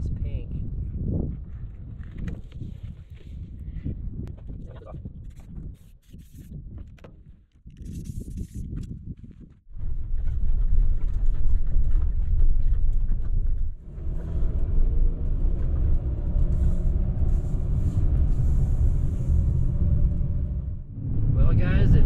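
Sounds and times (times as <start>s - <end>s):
van road and engine rumble: 11.4s - 22.0s.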